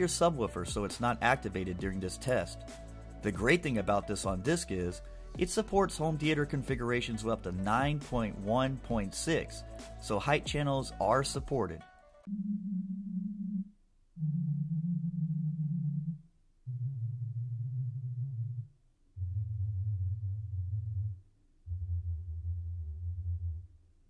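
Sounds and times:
low test tones through speakers: 0:12.3 - 0:24.0.

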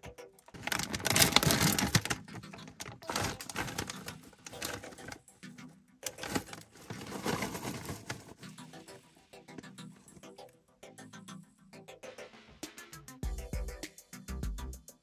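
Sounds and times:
plastic wrapper crinkling: 0:00.5 - 0:05.2, 0:06.0 - 0:08.5.

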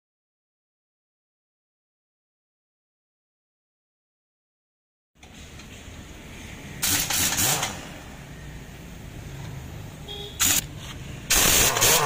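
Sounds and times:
pneumatic impact wrench: 0:06.8 - 0:08.0, 0:10.4 - 0:10.7, 0:11.3 - 0:12.0.

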